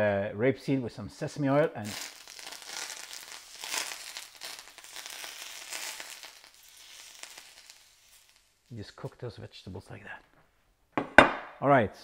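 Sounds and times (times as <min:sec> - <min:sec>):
hot oil sizzling and crackling: 0:01.0 - 0:10.0.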